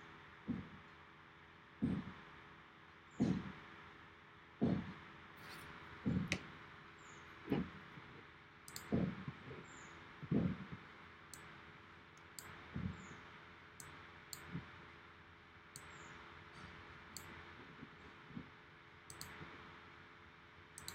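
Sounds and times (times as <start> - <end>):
soft low thumps: 1.8 - 2.2, 3.2 - 3.6, 4.6 - 5.0, 6.0 - 6.4, 8.9 - 9.4, 10.2 - 10.9
computer mouse clicking: 8.7 - 9.1, 13.8 - 14.5, 17.2 - 17.4, 19.1 - 19.4.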